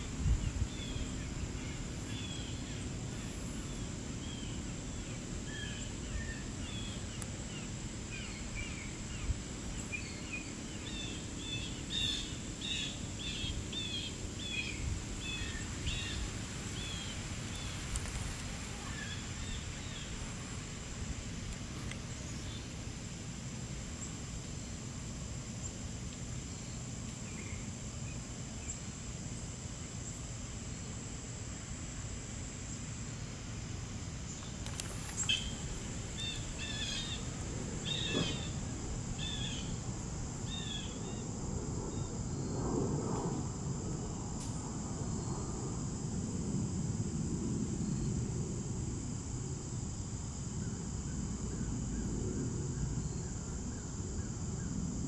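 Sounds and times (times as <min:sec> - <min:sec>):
high-pitched insect drone: 0:34.3 - 0:55.0.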